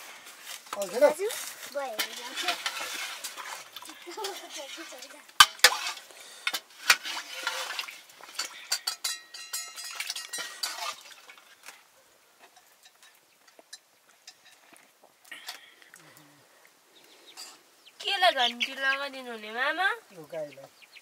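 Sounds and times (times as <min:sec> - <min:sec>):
metal pots clattering: 0:00.6 - 0:11.8, 0:12.4 - 0:15.7, 0:17.4 - 0:17.6.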